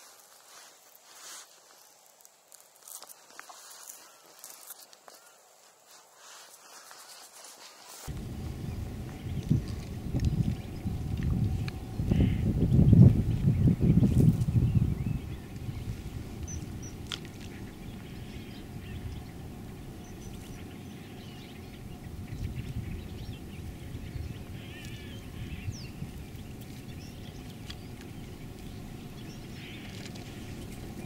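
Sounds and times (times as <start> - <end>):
low steady rumble: 8.1 - 31.0
faint bird chirps: 8.2 - 31.0.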